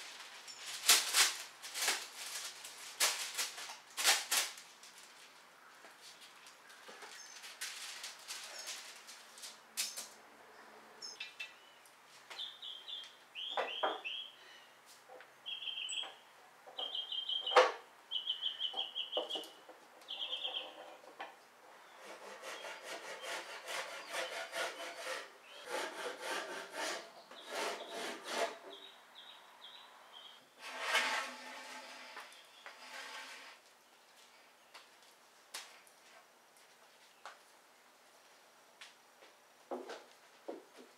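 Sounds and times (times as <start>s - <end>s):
bird chirping trills: 12.4s - 14.7s, 15.4s - 16.2s, 16.8s - 21.0s, 28.7s - 30.5s
scraping and rubbing of boards: 22.0s - 28.8s, 30.6s - 33.6s.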